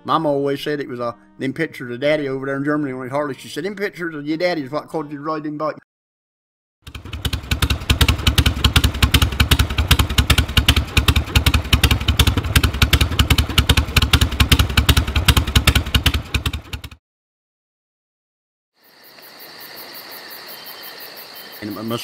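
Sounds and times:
motorcycle engine idling: 6.9 - 17.0.

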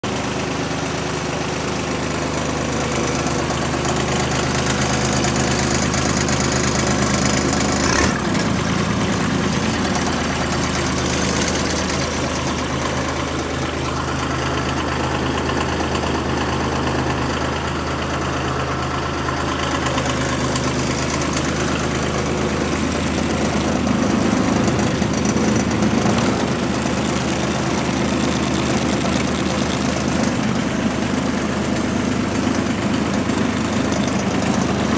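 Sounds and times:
diesel tractor engine idling: 0.0 - 34.9.

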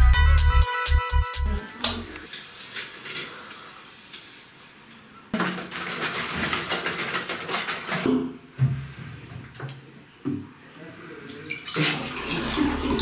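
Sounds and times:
water running in a bathroom: 11.2 - 13.0.

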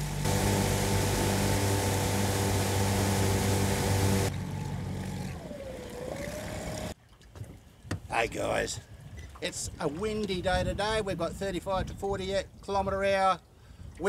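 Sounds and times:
outboard motor running: 0.0 - 7.0.

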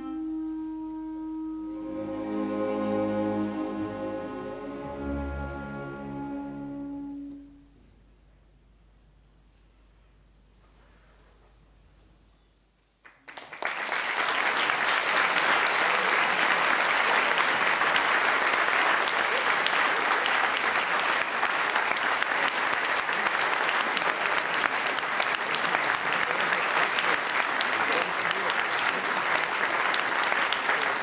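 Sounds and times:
concert audience applauding: 13.0 - 31.0.

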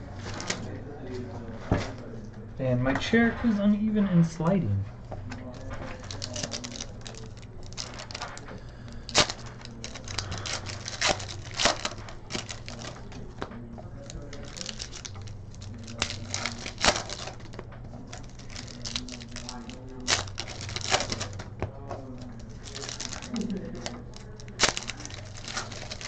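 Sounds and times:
low steady hum: 0.0 - 26.0
wrappers tearing and crinkling: 5.4 - 26.0.

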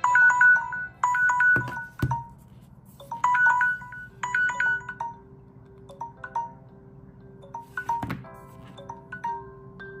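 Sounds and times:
phone timer alarm chimes: 0.0 - 2.3, 3.0 - 5.2.

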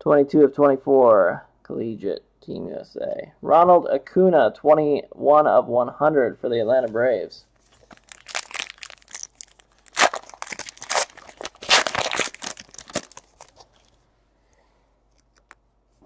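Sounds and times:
foil wrapper tearing and crinkling: 7.7 - 14.0.

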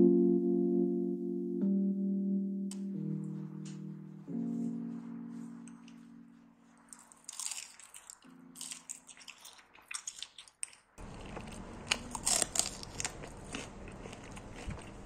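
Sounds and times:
crunchy food being chewed: 6.9 - 15.0
steady low hum: 11.0 - 15.0.

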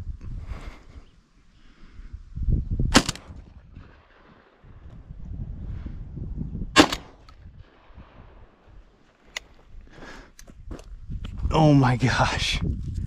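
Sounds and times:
wind on microphone: 0.0 - 9.0, 9.6 - 13.0
sharp cracks: 2.9 - 4.2, 6.8 - 7.4
footsteps on soil: 9.0 - 11.5.

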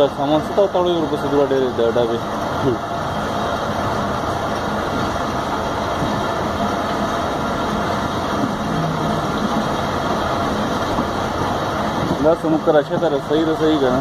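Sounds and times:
train wheels rumbling on rails: 3.8 - 14.0.

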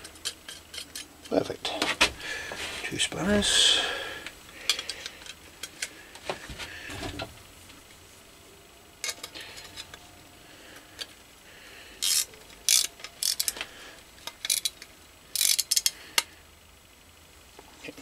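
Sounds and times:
ratchet spanner clicking: 12.0 - 13.6, 14.2 - 16.3.

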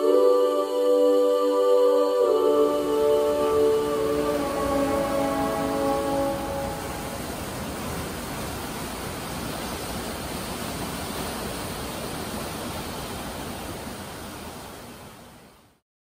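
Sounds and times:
churning seawater rushing: 2.8 - 14.4.

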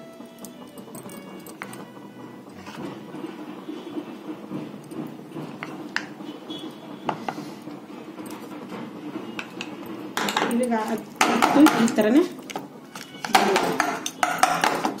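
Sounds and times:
metal spoon clinking on tin: 9.6 - 15.0.

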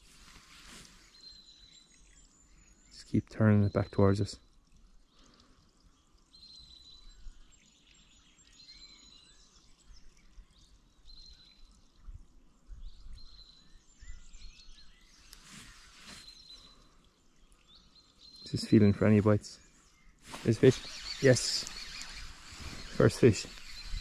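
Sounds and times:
songbirds singing: 0.0 - 24.0.

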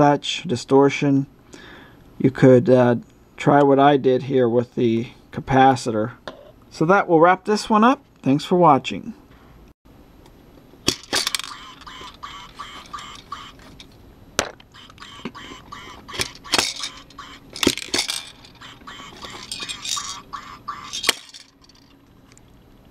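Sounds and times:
toy duck quacking: 11.1 - 13.8, 14.6 - 21.8.

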